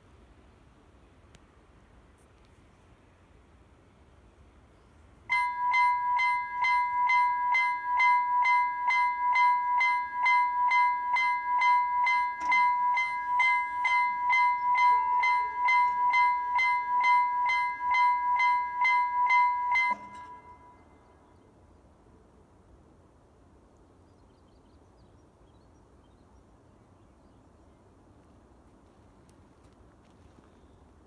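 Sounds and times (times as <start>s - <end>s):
level crossing warning bell ringing: 5.3s - 21.1s.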